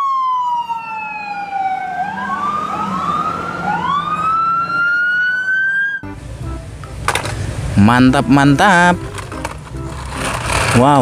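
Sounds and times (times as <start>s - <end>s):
police siren wailing: 0.0s - 6.0s.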